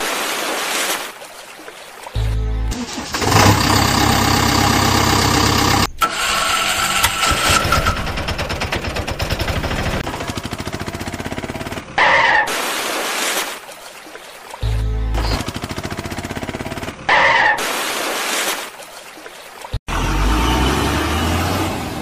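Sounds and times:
engine starting and idling: 2.7 - 11.8.

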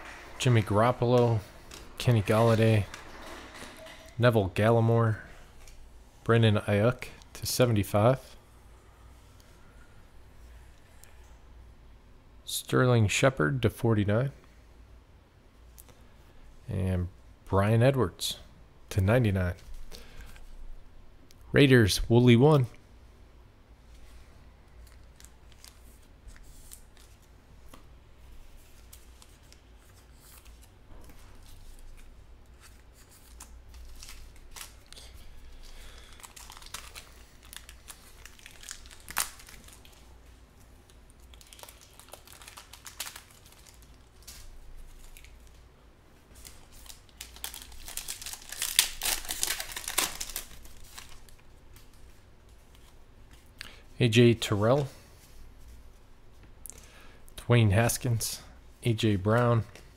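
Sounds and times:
foil wrapper crinkling and tearing: 31.4 - 40.1, 40.9 - 45.5, 46.4 - 52.0.

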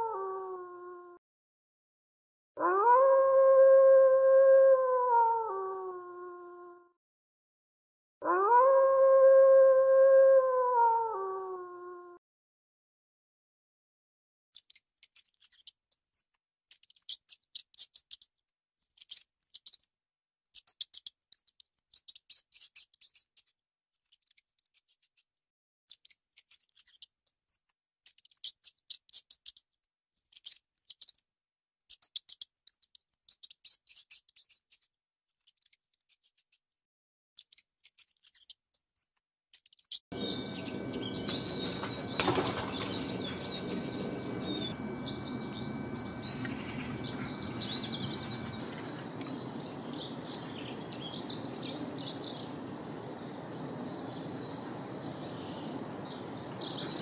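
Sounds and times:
outdoor background noise: 37.4 - 57.0
birds chirping: 39.8 - 57.0.

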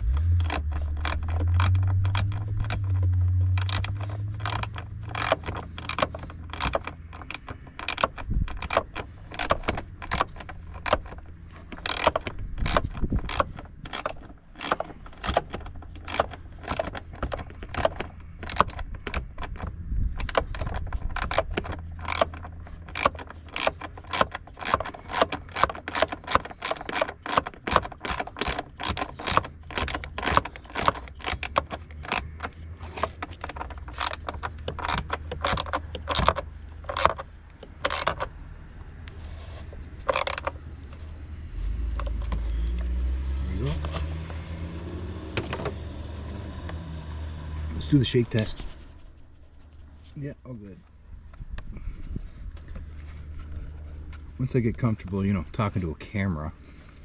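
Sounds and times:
low hum: 0.0 - 23.0
ratcheting wrench clicking: 0.0 - 38.4, 40.0 - 40.6.

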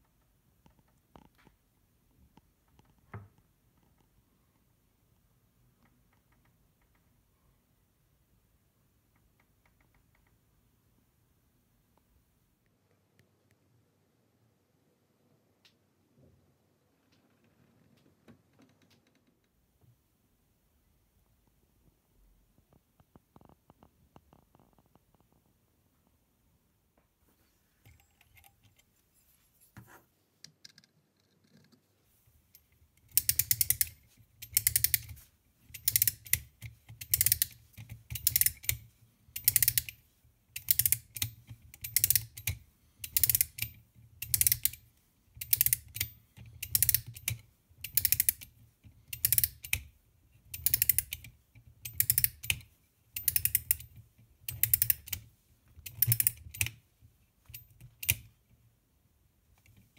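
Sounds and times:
clockwork ratchet clicking: 33.1 - 38.8, 39.4 - 40.0, 40.6 - 44.8, 45.4 - 48.5, 49.1 - 49.8, 50.5 - 52.6, 53.2 - 53.9, 54.5 - 55.2, 55.8 - 56.7.

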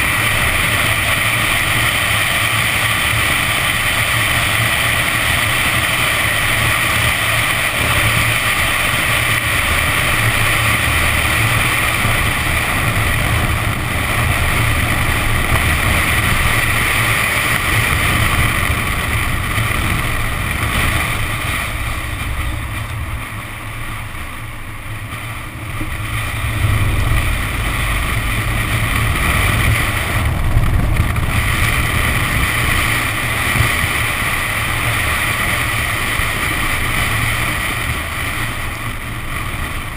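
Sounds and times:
car engine running: 0.0 - 39.9
wind rush on microphone: 0.0 - 39.9.

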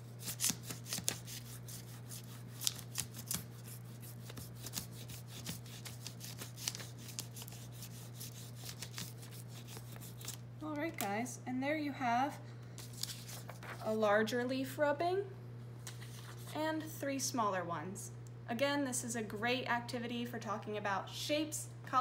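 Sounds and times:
crayon scratching on paper: 0.2 - 10.2.

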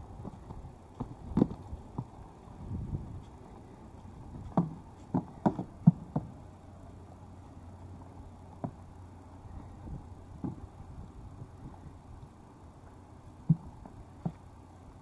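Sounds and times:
hooves knocking on platform: 4.3 - 6.4, 13.4 - 14.5.

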